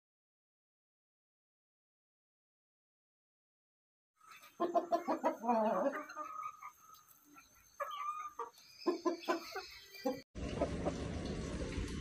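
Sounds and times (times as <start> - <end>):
chickens clucking and calling: 4.2 - 11.0.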